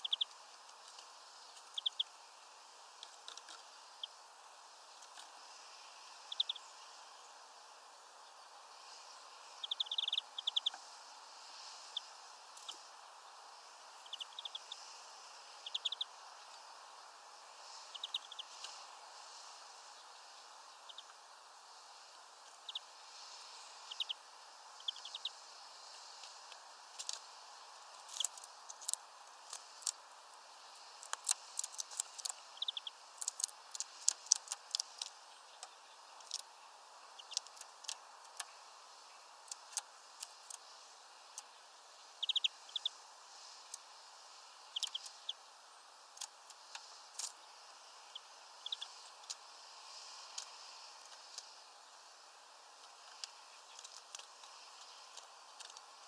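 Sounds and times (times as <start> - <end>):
birds tapping at feeder: 0.0 - 2.1, 26.1 - 30.0, 30.8 - 38.6, 39.4 - 40.7, 44.7 - 45.4, 52.8 - 56.0
faint bird chirps: 0.0 - 2.3, 2.9 - 30.0, 30.6 - 45.6, 46.4 - 52.1
steady low hiss: 0.0 - 56.0.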